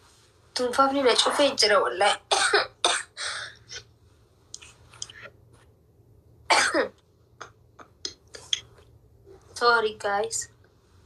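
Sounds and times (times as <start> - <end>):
woman coughing: 2.3 - 3.2, 6.5 - 6.9.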